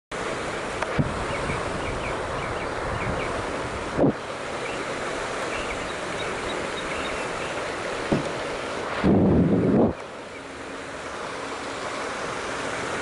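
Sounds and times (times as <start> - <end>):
wind rushing over microphone: 0.2 - 10.1.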